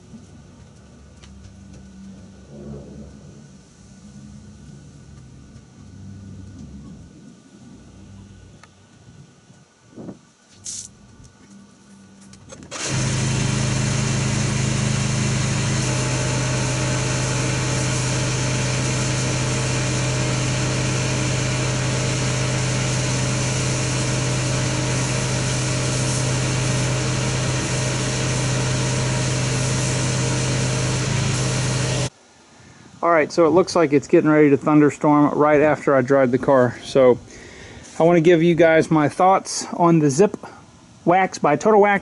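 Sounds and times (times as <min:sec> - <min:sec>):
small machine motor humming: 0:12.7 - 0:32.1.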